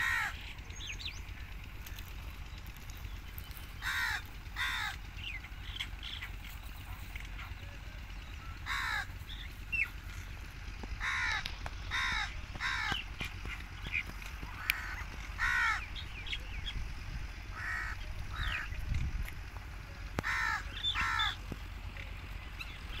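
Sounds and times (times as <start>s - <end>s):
crows cawing: 0.0s - 0.6s, 3.6s - 6.4s, 8.5s - 10.2s, 10.8s - 16.0s, 17.5s - 18.7s, 20.2s - 21.5s
small birds chirping: 0.0s - 23.0s
steady low rumble: 0.0s - 23.0s.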